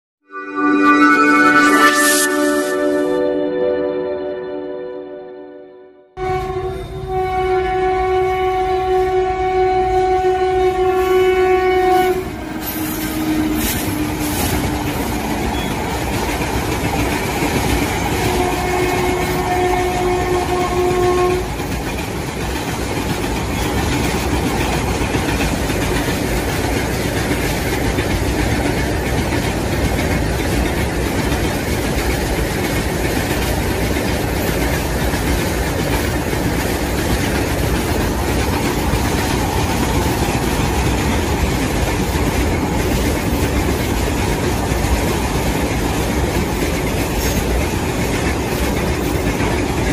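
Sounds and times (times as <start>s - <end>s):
train horn blowing: 0.2s - 16.0s, 17.9s - 21.7s
train wheels clattering on rails: 10.0s - 49.9s.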